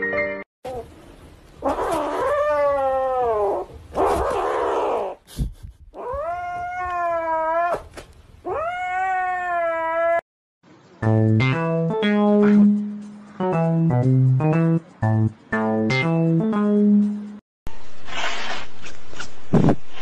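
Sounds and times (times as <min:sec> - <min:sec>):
kitten yowling: 0:01.6 - 0:05.2, 0:06.0 - 0:07.9, 0:08.5 - 0:10.2.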